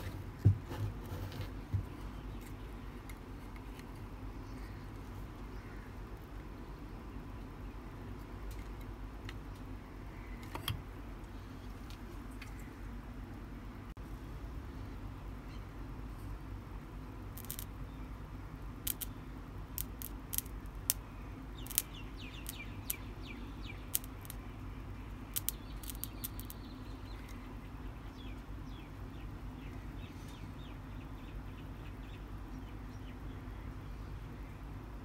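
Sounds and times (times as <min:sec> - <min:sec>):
birds chirping: 0:17.4 - 0:35.0
sharp sparking clicks: 0:18.8 - 0:19.1, 0:25.4 - 0:26.6.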